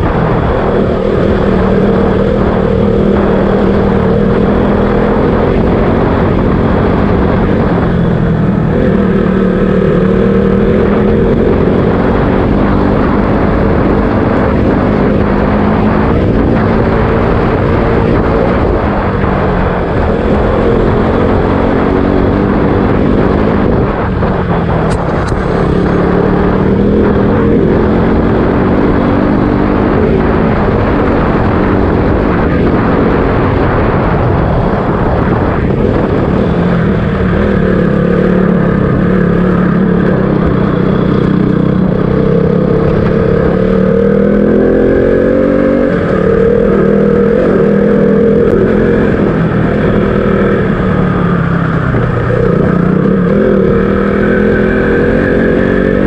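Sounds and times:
motorcycle engine revving: 0:00.0 - 0:56.0
wind rumble on microphone: 0:00.0 - 0:56.0.

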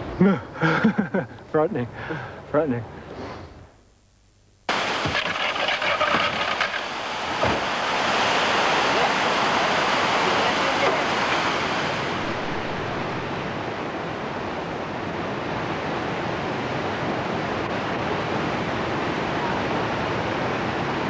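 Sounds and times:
waterfall roaring: 0:04.7 - 0:21.0.

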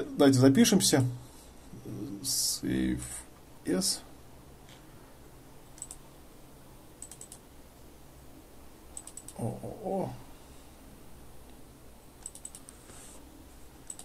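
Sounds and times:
computer mouse clicking: 0:05.7 - 0:06.0, 0:07.0 - 0:07.4, 0:08.9 - 0:09.4, 0:12.2 - 0:12.9
man murmuring: 0:09.4 - 0:10.3.

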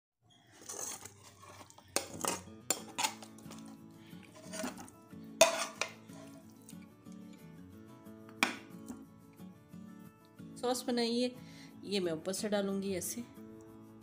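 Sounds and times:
knife scraping a frying pan: 0:00.4 - 0:06.5
soft background music: 0:00.4 - 0:14.0.

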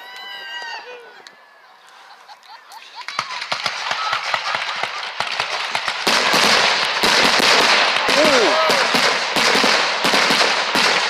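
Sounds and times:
fireworks crackling pops: 0:02.7 - 0:11.0.

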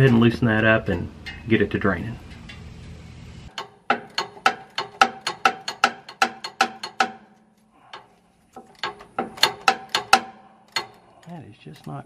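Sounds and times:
socket ratchet clicking: 0:03.5 - 0:07.3, 0:07.9 - 0:11.2.

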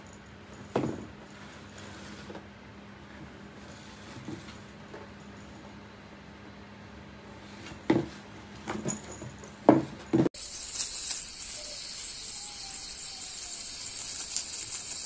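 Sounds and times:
cardboard box knocking on tile floor: 0:07.9 - 0:08.9
steady high-pitched hiss: 0:10.4 - 0:15.0.

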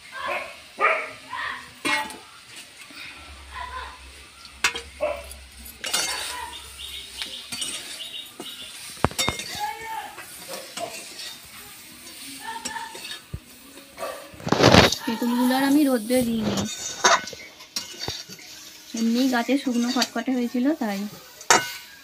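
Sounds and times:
oil sizzling: 0:00.0 - 0:22.0
metal spatula scraping pan: 0:01.8 - 0:22.0
spatula clinking against pan: 0:04.5 - 0:09.6, 0:12.6 - 0:13.3, 0:16.6 - 0:20.2, 0:21.3 - 0:22.0.

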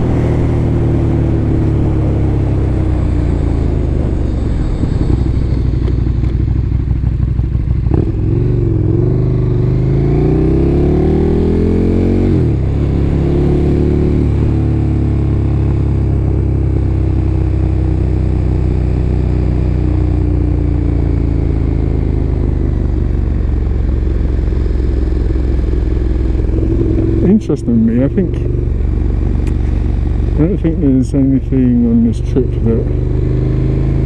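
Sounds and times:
motorcycle engine revving: 0:00.0 - 0:34.0.

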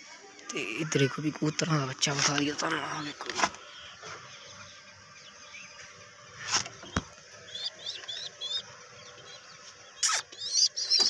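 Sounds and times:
high bird chirps: 0:06.8 - 0:11.0.

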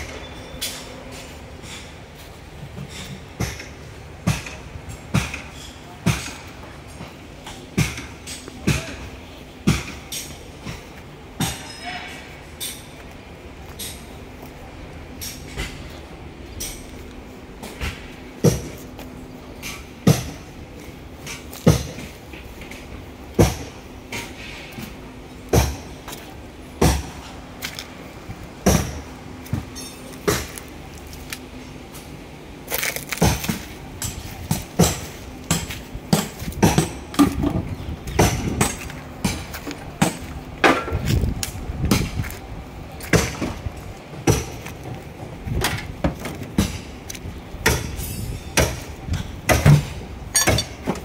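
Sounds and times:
footsteps crunching over debris: 0:27.6 - 0:37.4.

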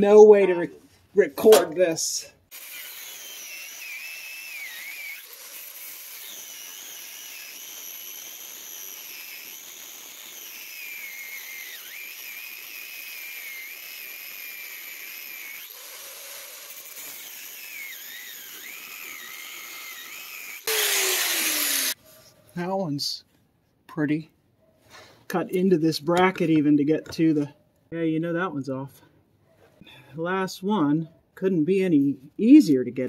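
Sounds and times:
angle grinder cutting steel: 0:02.5 - 0:22.0.

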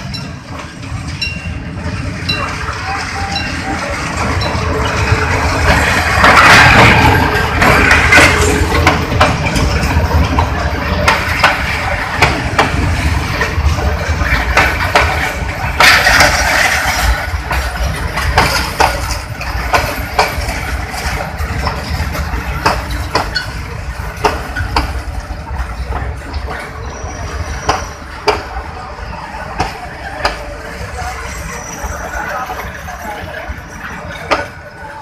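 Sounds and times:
train rumbling past: 0:00.0 - 0:35.0
wheels clacking over rail joints: 0:00.0 - 0:35.0.

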